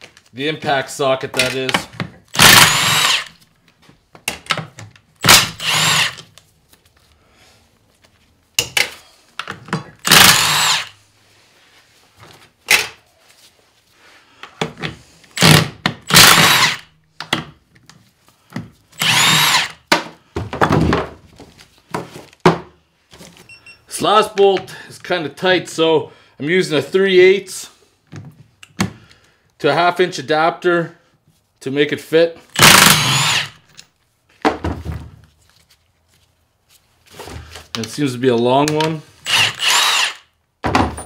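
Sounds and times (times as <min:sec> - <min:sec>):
impact wrench bursts: 0:02.3 - 0:03.4, 0:05.2 - 0:06.3, 0:10.0 - 0:11.0, 0:15.3 - 0:16.9, 0:19.0 - 0:19.9, 0:32.5 - 0:33.7, 0:39.2 - 0:40.4.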